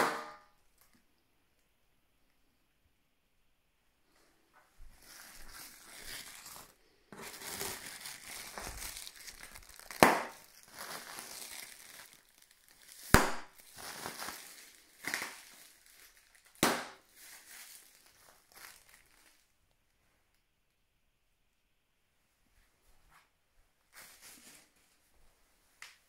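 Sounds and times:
plastic air pillows crinkling: 0:04.1 - 0:19.6, 0:23.9 - 0:25.1.

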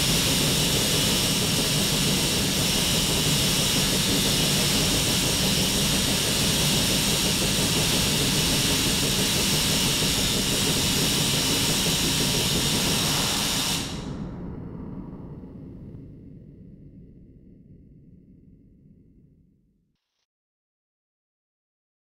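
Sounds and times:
tesla coil spark hissing: 0:00.0 - 0:14.1.

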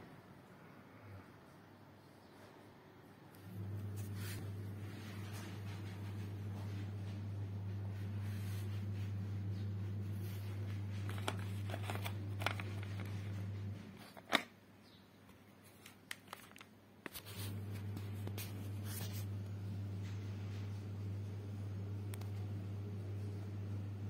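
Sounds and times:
steady low hum: 0:03.0 - 0:14.4, 0:17.0 - 0:24.0
plastic packaging clicks and rustles: 0:10.8 - 0:13.3, 0:13.9 - 0:14.6, 0:15.6 - 0:17.5.

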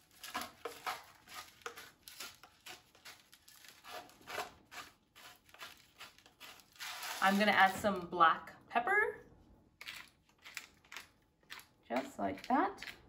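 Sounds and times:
salt grinder grinding: 0:00.2 - 0:07.6.

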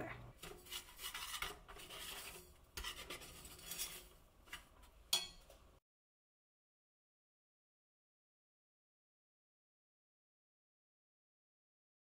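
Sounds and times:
utensil scraping pot of sugar: 0:00.3 - 0:05.4.

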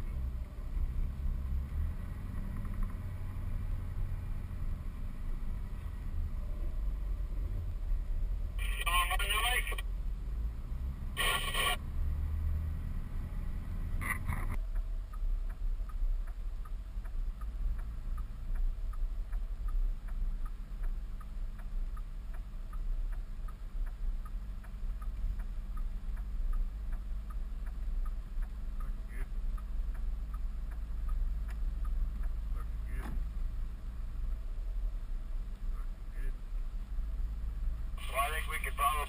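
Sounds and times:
vehicle rumble from inside cab: 0:00.0 - 0:39.0
light even ticking: 0:14.3 - 0:39.0.

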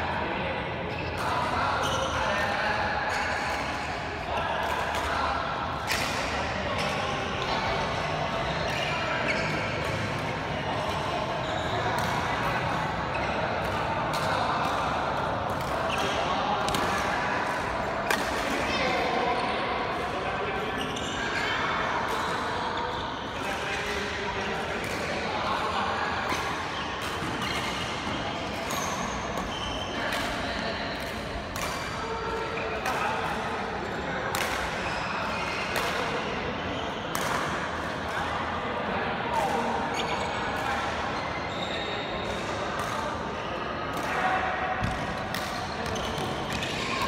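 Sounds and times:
racket hitting shuttlecock: 0:12.0 - 0:12.9
rackets hitting shuttlecock: 0:12.0 - 0:18.6, 0:31.0 - 0:31.8, 0:44.8 - 0:46.8.

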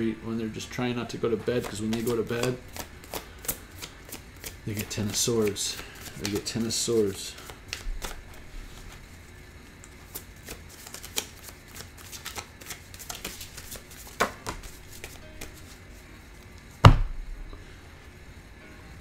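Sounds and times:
cards being shuffled: 0:01.3 - 0:16.6
sharp knock: 0:16.8 - 0:17.3.

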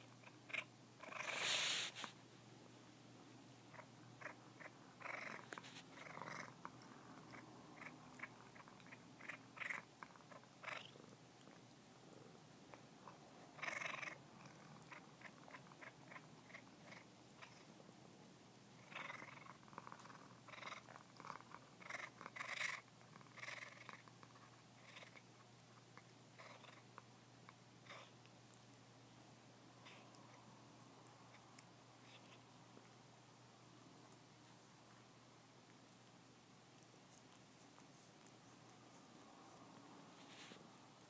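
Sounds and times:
cat purring: 0:00.0 - 0:02.2, 0:03.2 - 0:33.0
cat chewing clicks and smacks: 0:06.0 - 0:10.7, 0:35.6 - 0:39.9.

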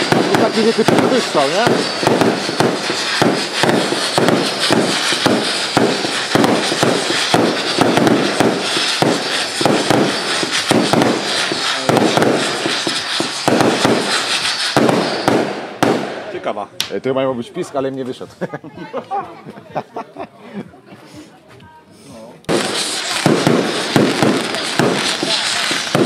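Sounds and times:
firework bangs in rapid string: 0:00.0 - 0:16.6, 0:22.5 - 0:26.0.

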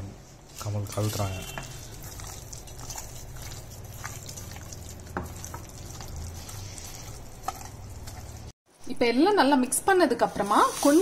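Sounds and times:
hand squelching wet meat mixture: 0:00.4 - 0:08.6.

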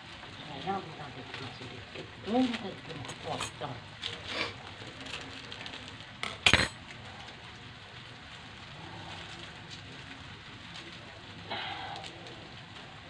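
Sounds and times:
noodles sizzling in a wok: 0:00.0 - 0:13.0
metallic clank of kitchen utensils: 0:06.2 - 0:06.8.

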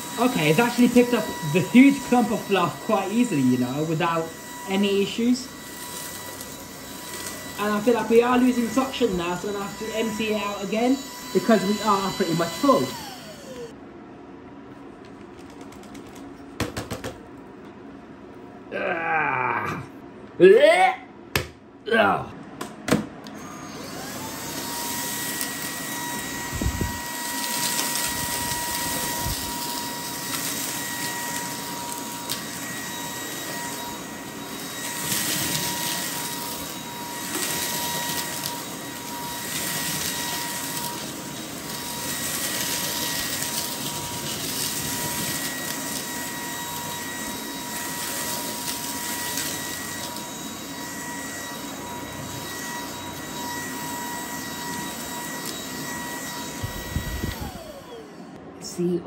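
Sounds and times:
vacuum motor whine: 0:00.0 - 0:13.8, 0:23.2 - 0:59.0
vacuum head on carpet: 0:00.1 - 0:13.7.

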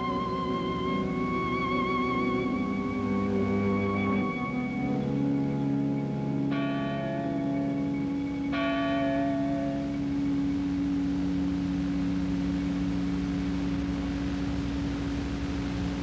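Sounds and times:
low held drone: 0:00.0 - 0:16.0
bell-like chime: 0:05.8 - 0:11.4.

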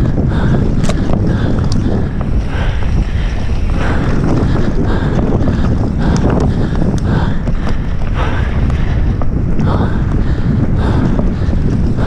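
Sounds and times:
tyres rolling on dirt: 0:00.0 - 0:10.5
bike clicks and rattles: 0:00.0 - 0:12.0
wind rushing on microphone: 0:00.0 - 0:12.0.

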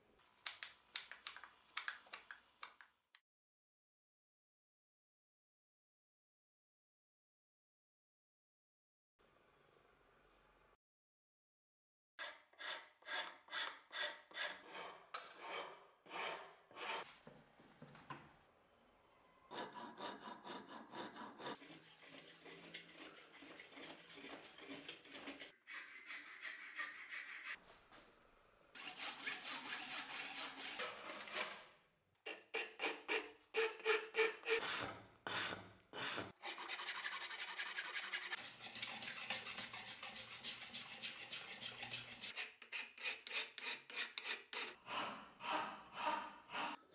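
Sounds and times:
rasp scraping wood: 0:12.2 - 0:17.0, 0:19.6 - 0:27.6, 0:32.3 - 0:46.8.

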